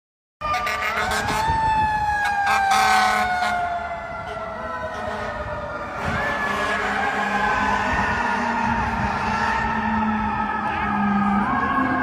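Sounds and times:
fire truck siren wailing: 0.4s - 12.0s
street noise: 0.4s - 12.0s.

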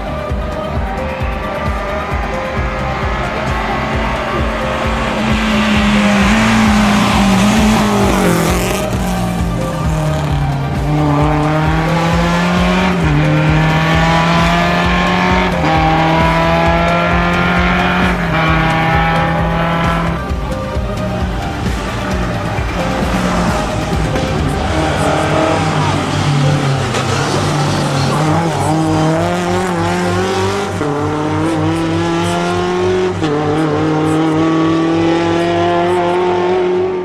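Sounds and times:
background music with steady beat: 0.0s - 37.0s
rally car engine revving hard: 1.7s - 37.0s
tyres squealing: 21.2s - 30.9s.

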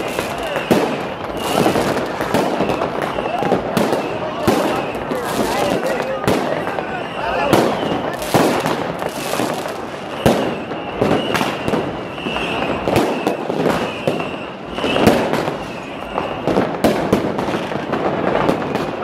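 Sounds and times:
firecrackers crackling: 0.0s - 19.0s
firework bangs: 0.0s - 19.0s.

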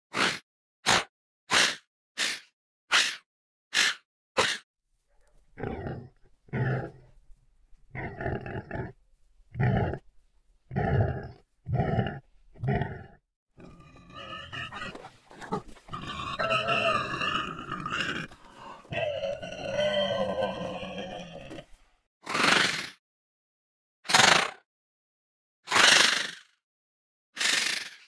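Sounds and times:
animal growls and grunts: 5.2s - 22.8s
animal cries: 13.7s - 21.5s.

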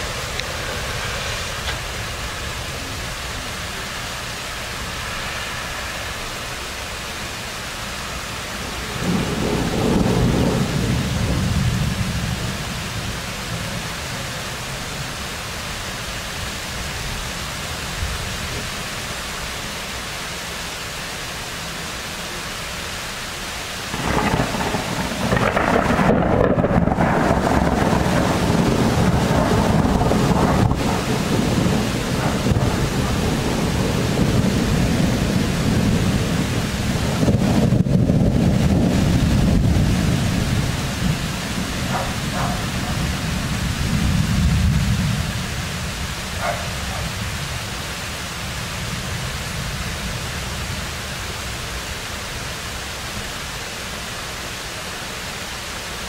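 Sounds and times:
steady rain: 0.0s - 56.0s
thunder rumbling: 8.6s - 15.1s, 23.9s - 50.9s.

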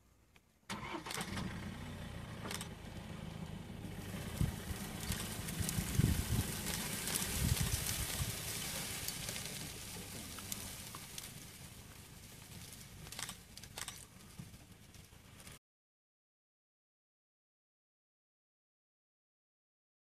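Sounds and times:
low rumble: 1.9s - 13.9s
sharp clicks: 2.4s - 2.7s, 13.0s - 14.2s.

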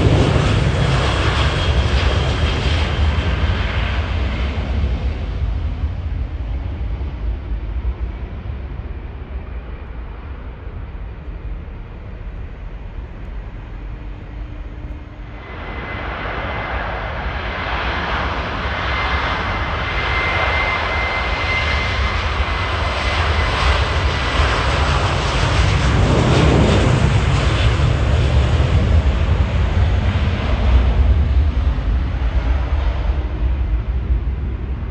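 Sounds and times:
low rumble: 0.0s - 20.1s, 20.8s - 34.9s
jet engines rushing: 0.0s - 34.9s
high whine: 7.9s - 22.5s.

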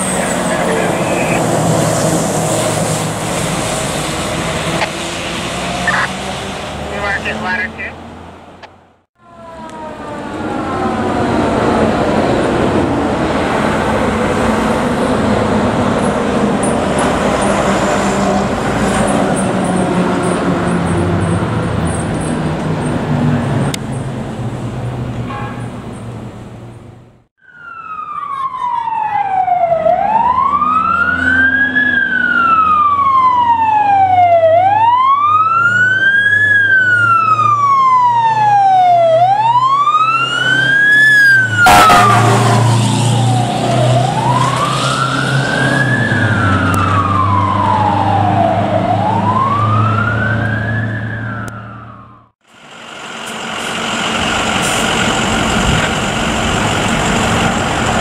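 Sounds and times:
fire truck siren wailing: 0.0s - 8.0s, 9.2s - 21.8s, 27.4s - 58.0s
fire engine idling: 52.4s - 58.0s.

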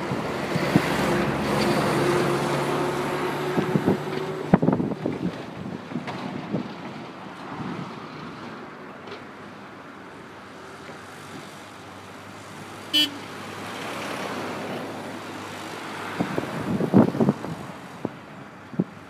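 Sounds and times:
wind buffeting microphone: 0.0s - 8.7s, 15.9s - 19.0s
construction machinery engines humming: 8.2s - 14.1s.

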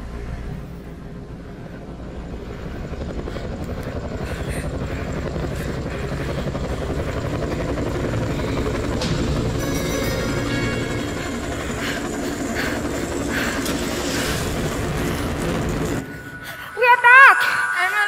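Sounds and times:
helicopter-like engine chop over speakers: 0.7s - 16.4s.

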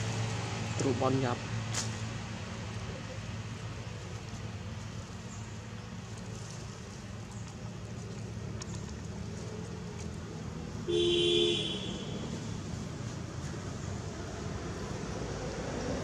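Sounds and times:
distant traffic rumble: 0.0s - 16.0s
two-tone vehicle horn honk: 10.9s - 12.3s.

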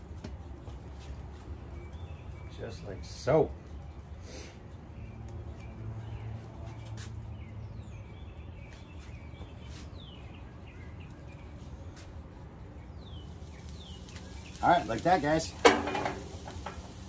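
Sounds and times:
songbird chirping: 1.5s - 4.2s, 4.8s - 15.6s.

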